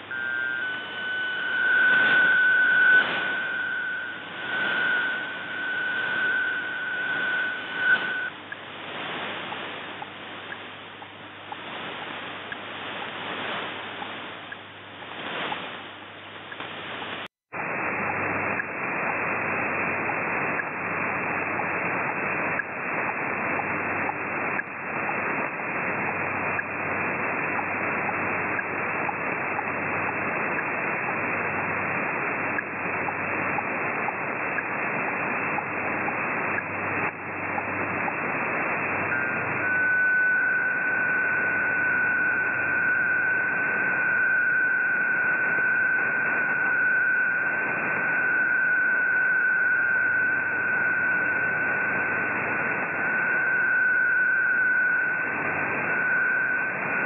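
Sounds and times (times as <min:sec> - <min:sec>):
steady digital data tone: 0:00.0 - 0:15.7, 0:35.4 - 0:57.0
radio hiss and static: 0:00.0 - 0:57.0.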